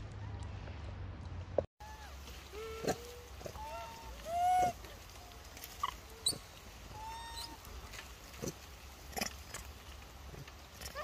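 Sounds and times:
infant monkey cooing: 1.9 - 4.9, 5.8 - 7.6.

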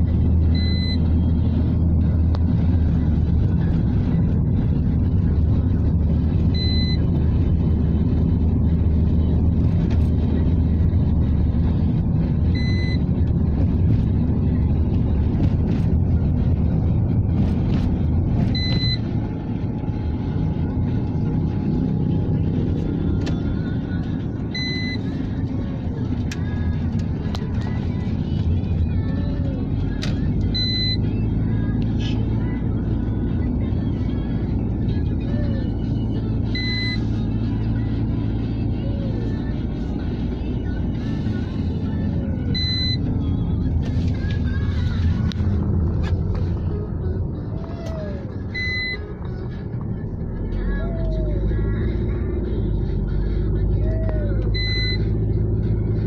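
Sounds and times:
car road and engine rumble: 0.0 - 56.0
short electronic beep: 0.5 - 1.1, 6.5 - 7.2, 12.5 - 13.1, 18.5 - 19.1, 24.5 - 25.0, 30.5 - 31.0, 42.5 - 43.1, 48.5 - 49.0, 54.6 - 55.2.

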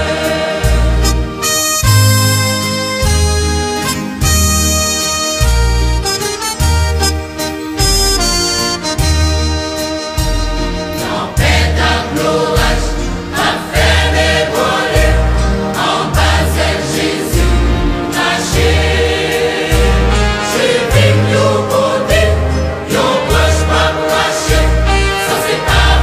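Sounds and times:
gospel choir singing: 0.0 - 1.6, 10.9 - 26.0
band with steady bass pulse: 0.0 - 26.0.

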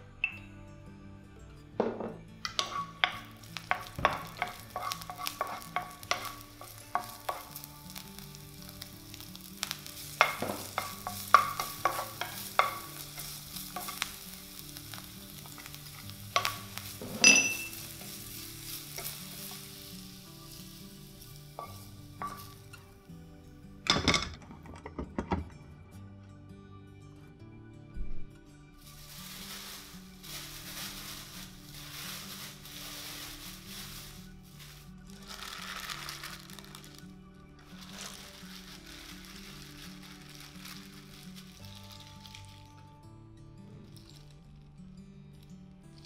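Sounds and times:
wooden spatula scraping pan: 2.5 - 7.6
food sizzling in oil: 2.5 - 23.0, 28.8 - 42.8.

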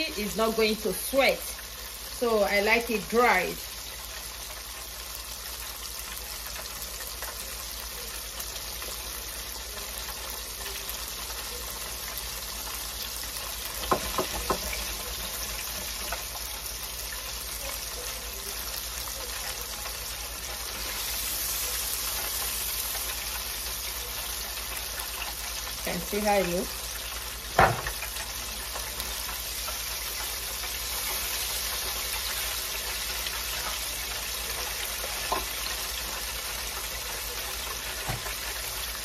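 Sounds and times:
fish deep-frying in oil: 0.0 - 39.0.

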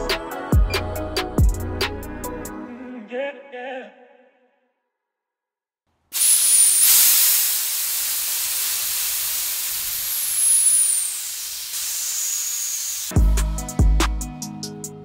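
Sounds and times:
gas hissing through hoses: 6.1 - 13.2
faint high whistle: 6.2 - 7.7, 10.1 - 13.1.

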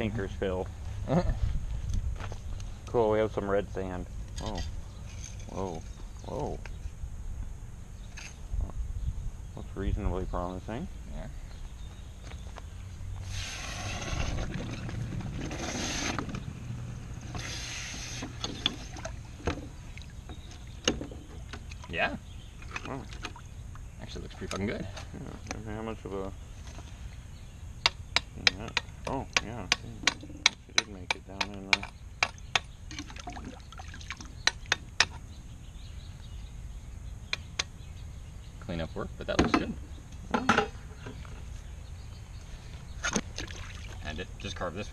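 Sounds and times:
water sloshing: 17.2 - 24.6, 32.9 - 34.7, 43.0 - 44.1
water sloshing in plastic tub: 43.0 - 44.1.

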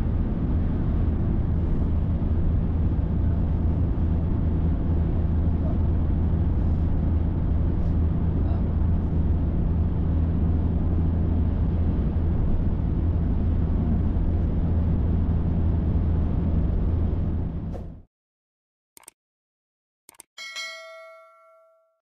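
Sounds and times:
car engine and road noise: 0.0 - 18.0.

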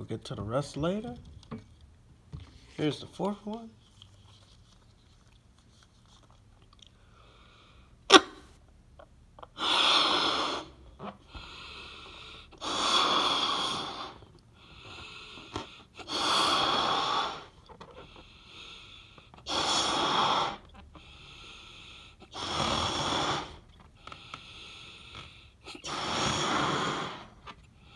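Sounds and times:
breaths blowing up balloon: 9.4 - 27.9.

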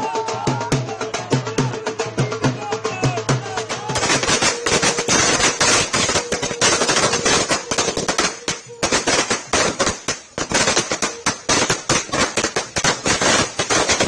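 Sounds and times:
firecrackers banging: 3.4 - 14.0.

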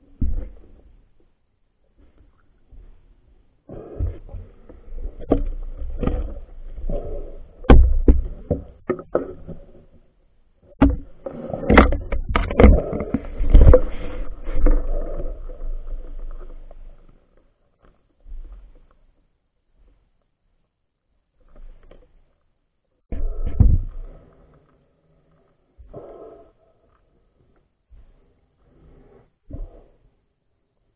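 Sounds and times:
muffled underwater knocks and rubbing: 4.0 - 10.0, 10.7 - 16.8.

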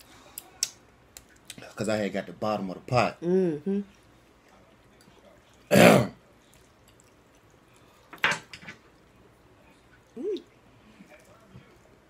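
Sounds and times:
person humming: 3.2 - 3.9, 10.2 - 10.5.

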